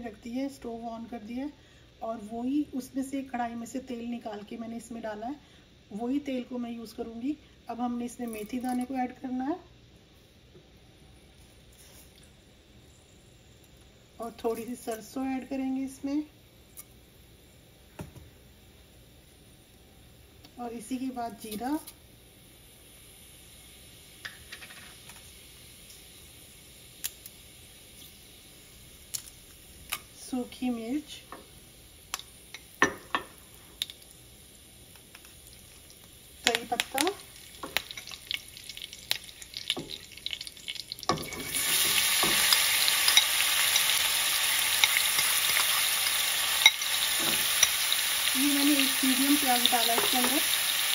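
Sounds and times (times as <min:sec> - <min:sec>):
seeds sizzling in hot oil: 0:18.5 - 0:50.9
seeds popping in oil: 0:32.0 - 0:34.2, 0:34.8 - 0:50.8.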